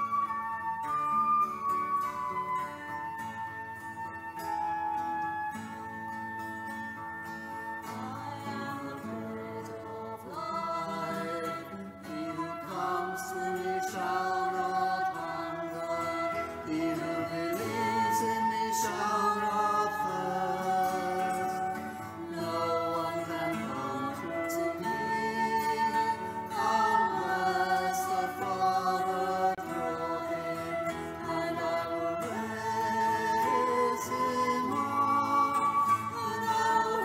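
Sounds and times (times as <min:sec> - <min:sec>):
hymn singing: 0:00.0 - 0:03.2, 0:07.8 - 0:37.0.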